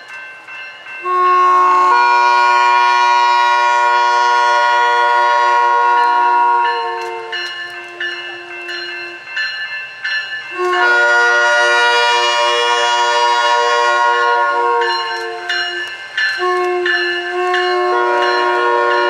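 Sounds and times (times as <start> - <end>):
bell ringing: 0.0 - 1.5, 6.0 - 11.1, 14.8 - 19.0
train horn blasts: 1.0 - 9.2, 10.5 - 19.0.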